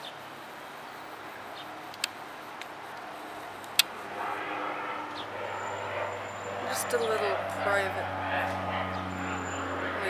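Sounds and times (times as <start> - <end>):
distant turboprop airplane drone: 0.0 - 10.0
sharp clicks: 1.8 - 4.0.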